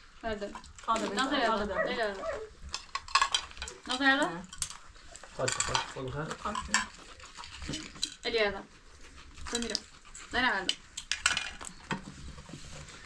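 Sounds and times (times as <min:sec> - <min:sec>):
people talking: 0:00.2 - 0:02.5, 0:03.9 - 0:04.5, 0:07.7 - 0:08.7, 0:09.5 - 0:10.8.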